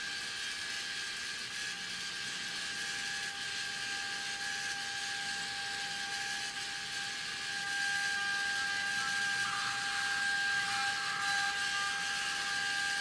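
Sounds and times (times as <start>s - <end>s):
servo motor and gears whining: 5.0s - 13.0s.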